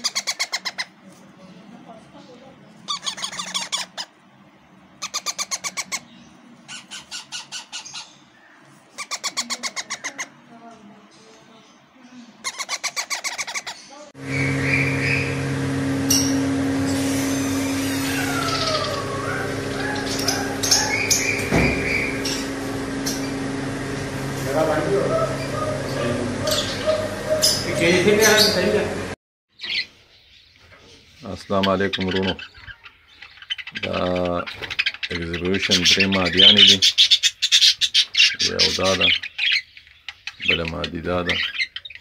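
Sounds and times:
parrots chirping and whistling: 0.0s - 1.0s, 2.7s - 4.3s, 4.9s - 10.4s, 12.4s - 28.6s, 31.1s - 42.0s
chicks chattering begging calls: 0.0s - 10.6s, 11.7s - 30.2s, 31.0s - 42.0s
steady machine hum: 14.1s - 29.2s.

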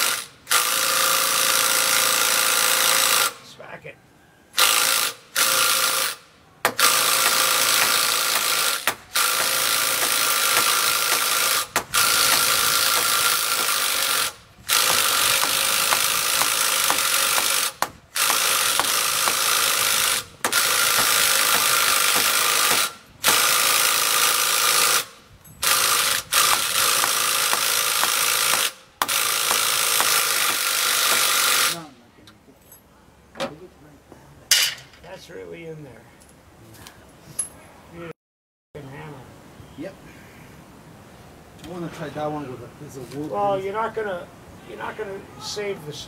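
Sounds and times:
impact wrench hammering: 4.6s - 31.7s.

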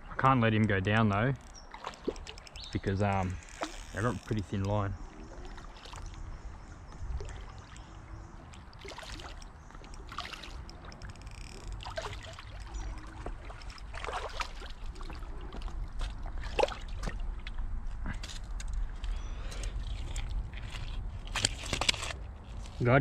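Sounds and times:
fish splashing in water: 1.5s - 2.7s, 5.0s - 17.5s.

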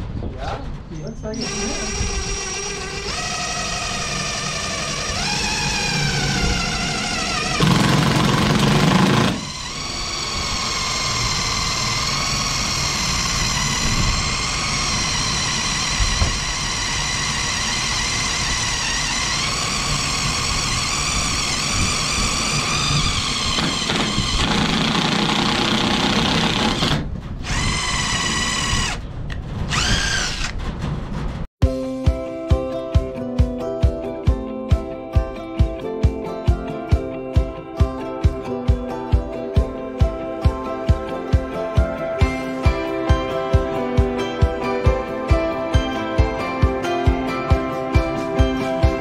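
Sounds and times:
cordless drill whining: 1.4s - 29.0s, 29.7s - 30.6s.

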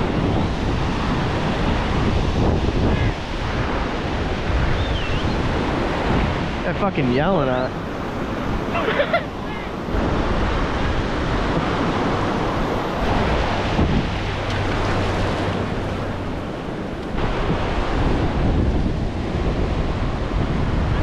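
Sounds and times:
ocean surf washing in: 0.0s - 21.0s
wind buffeting microphone: 0.0s - 21.0s.

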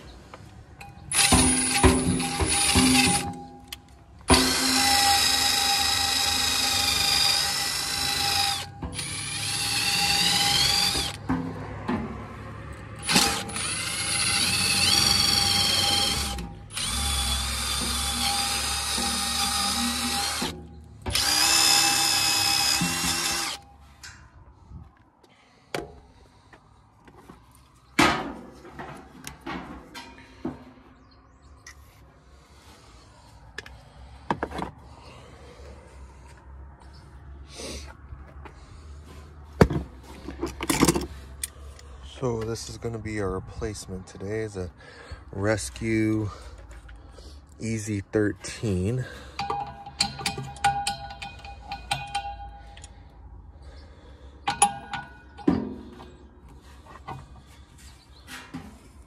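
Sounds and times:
drill with wire brush on metal: 1.1s - 3.5s, 4.3s - 11.2s, 13.0s - 23.7s.

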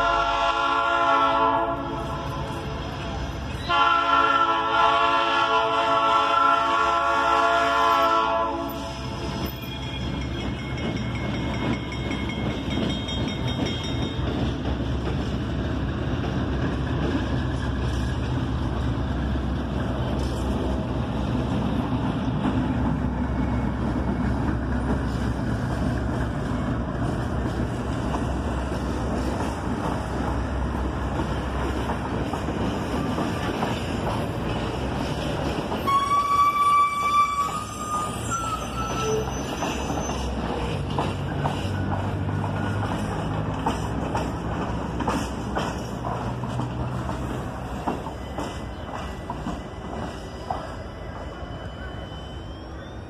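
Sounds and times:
locomotive engine rumbling: 0.0s - 53.0s
train coaches rolling on rails: 0.0s - 53.0s.

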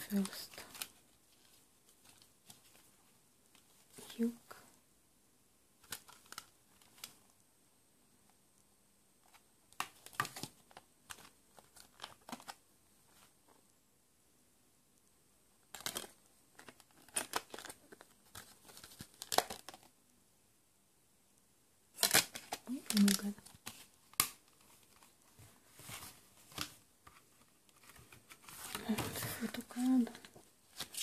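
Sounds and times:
plastic packaging crinkling and clicking: 5.8s - 7.2s, 9.2s - 12.6s, 15.6s - 19.9s, 22.0s - 31.0s.

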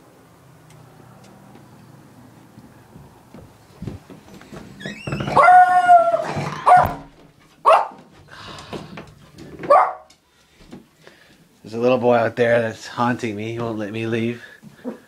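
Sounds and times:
small dog barking: 7.6s - 8.0s, 9.7s - 10.1s.

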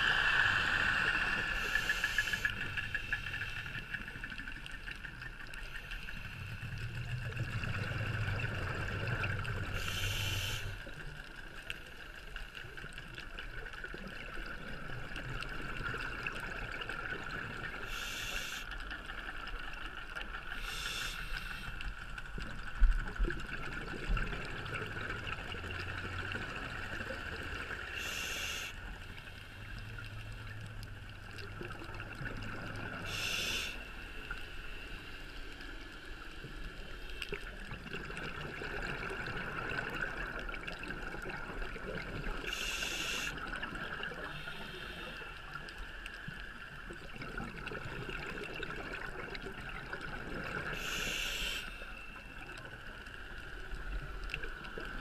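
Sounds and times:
regulator breathing hiss: 0.0s - 4.0s, 9.8s - 10.9s, 17.8s - 18.8s, 20.5s - 21.8s, 27.9s - 28.9s, 33.0s - 34.0s, 42.5s - 43.4s, 44.2s - 45.4s, 50.8s - 52.0s
steady underwater hiss: 0.0s - 55.0s.

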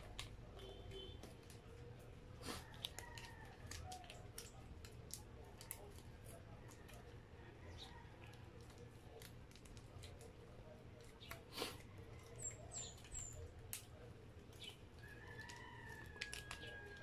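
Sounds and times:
plastic sachets crinkling: 0.0s - 17.0s
sachet tearing open: 15.0s - 17.0s.

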